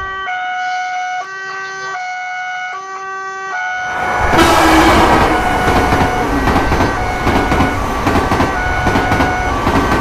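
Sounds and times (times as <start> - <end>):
two-tone crossing alarm: 0.0 - 10.0
train rumble: 3.8 - 10.0.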